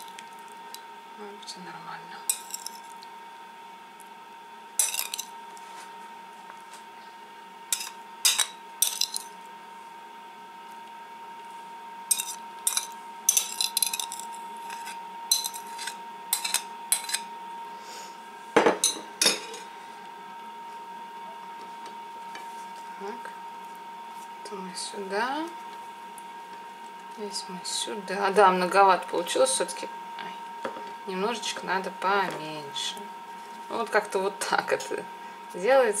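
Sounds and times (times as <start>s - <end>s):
faint high hum: 0.0s - 36.0s
metal spoon clinking on glass bowl: 2.3s - 2.8s, 4.8s - 5.3s, 7.7s - 9.3s, 12.1s - 17.2s.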